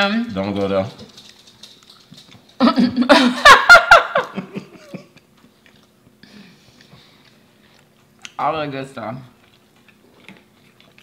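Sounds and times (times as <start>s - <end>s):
person laughing out loud: 2.6s - 5.2s.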